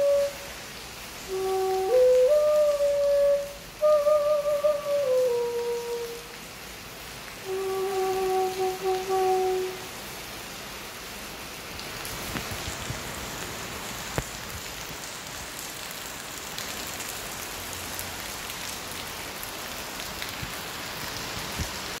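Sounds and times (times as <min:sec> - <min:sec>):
water drips: 0:00.0 - 0:10.1
rain on a wet street: 0:00.0 - 0:22.0.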